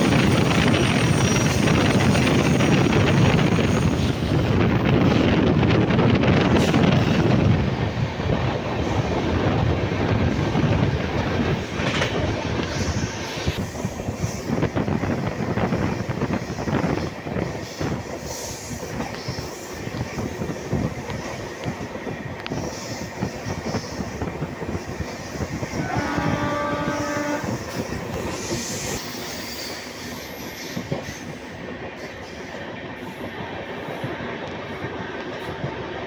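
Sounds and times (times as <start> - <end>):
train running noise: 0.0 - 36.0
locomotive horn: 25.7 - 27.6.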